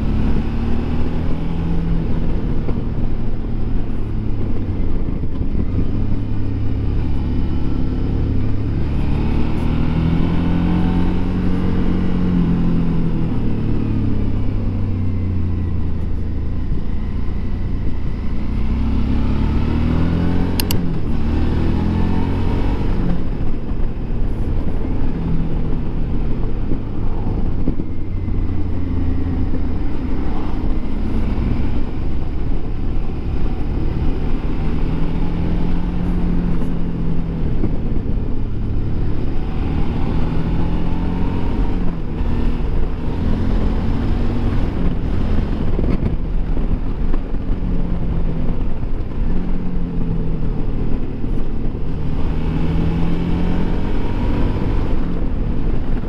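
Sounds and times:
motorcycle engine revving: 0.0s - 56.0s
sharp click: 20.5s - 20.9s.

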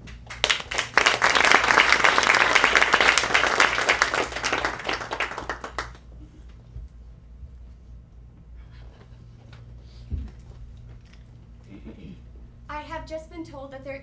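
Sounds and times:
audience applauding: 0.1s - 6.1s.

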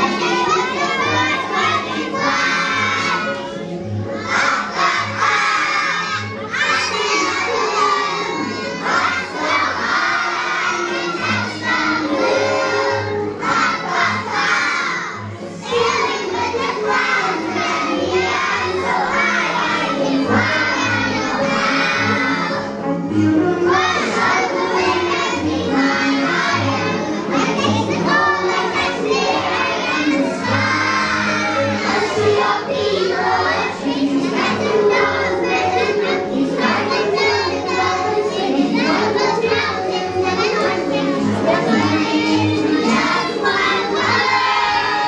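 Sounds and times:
accompaniment music: 0.0s - 45.0s
children singing: 0.0s - 45.0s.

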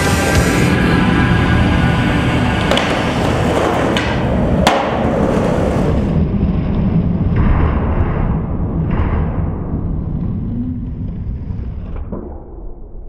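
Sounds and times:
steady low rumble: 0.0s - 13.0s
skateboard clacking on concrete: 2.7s - 5.6s.

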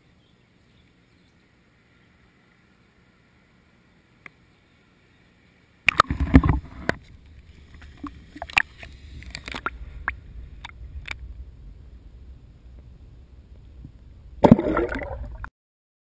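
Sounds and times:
water splashing and sloshing: 5.9s - 11.3s, 13.5s - 15.5s
sharp splashes and knocks: 14.4s - 15.5s.

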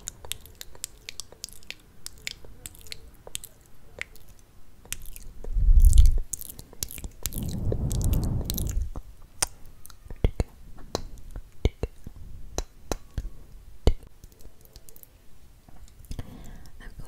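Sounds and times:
wet lip smacks and mouth clicks: 0.0s - 7.4s
low bursts: 7.2s - 9.2s.

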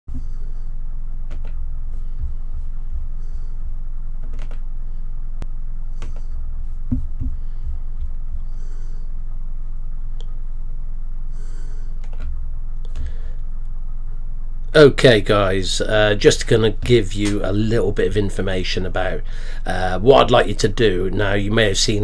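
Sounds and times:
low electrical hum: 0.1s - 22.0s
mouse and keyboard clicks: 4.2s - 4.6s.

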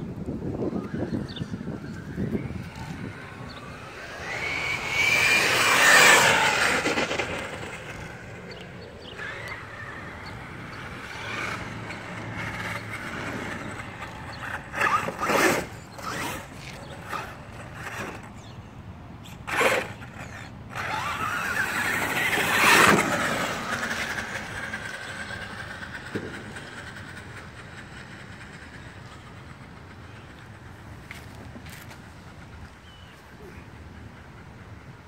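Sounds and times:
electric motor whining: 0.5s - 18.4s, 19.4s - 26.6s.

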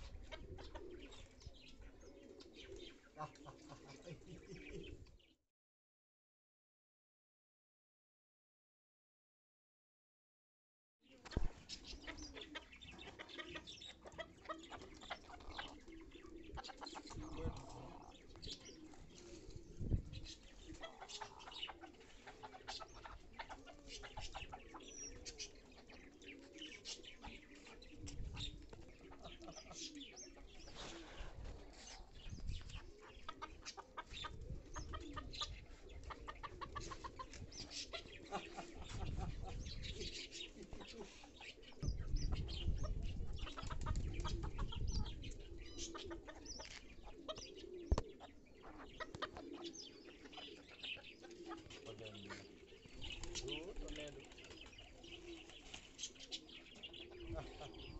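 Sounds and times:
chickens clucking softly: 0.0s - 5.2s, 11.1s - 57.9s.

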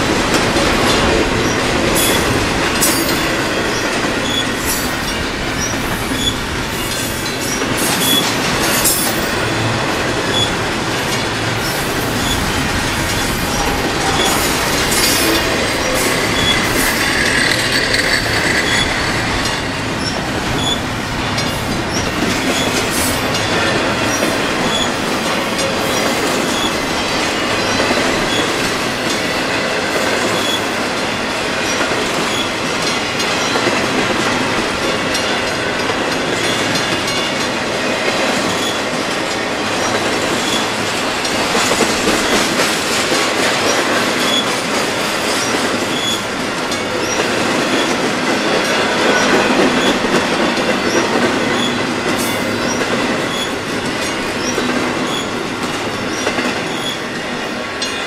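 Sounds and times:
wheels clicking over rails: 0.0s - 29.5s
freight train rolling past: 0.0s - 58.0s.

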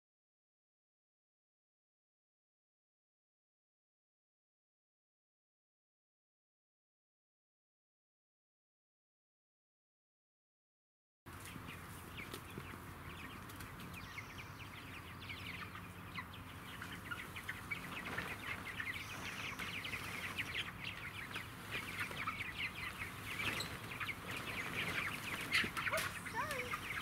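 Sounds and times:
chicks peeping: 11.3s - 27.0s.

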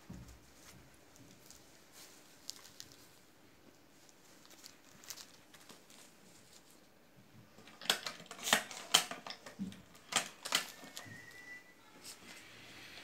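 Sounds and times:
metallic clicks of hand machine: 7.6s - 11.0s.

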